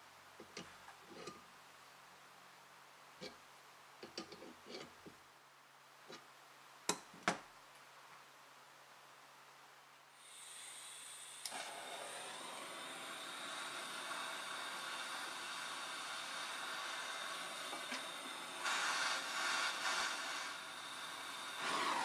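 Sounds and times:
gas hissing: 10.2 - 22.0
gas torch flame burning: 10.2 - 22.0.

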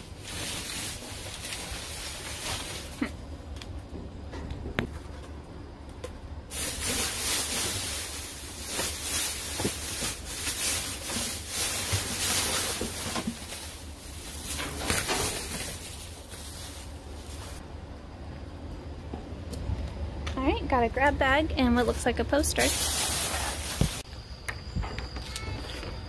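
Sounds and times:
plastic bags rustling and crinkling: 0.0 - 3.3, 6.5 - 17.6, 21.8 - 24.1.

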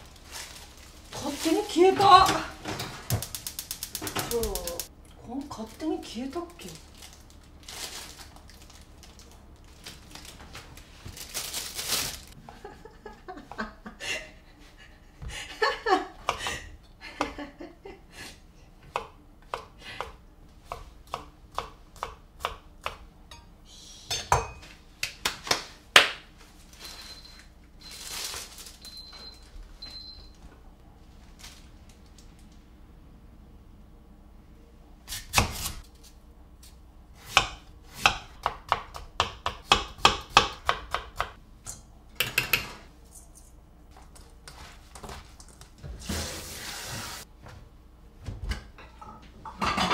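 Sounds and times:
knife chopping on cutting board: 37.2 - 41.4
pans and utensils clattering: 48.8 - 49.9.

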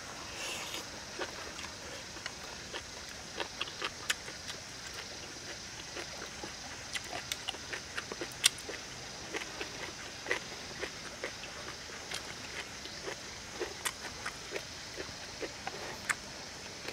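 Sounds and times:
faint high hiss: 0.0 - 3.1
person chewing and smacking food: 1.2 - 16.2.

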